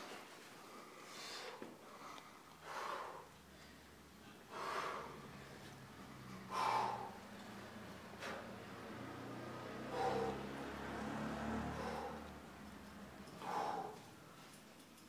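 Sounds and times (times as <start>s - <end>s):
person exhaling forcefully: 6.4s - 7.2s, 9.9s - 10.6s.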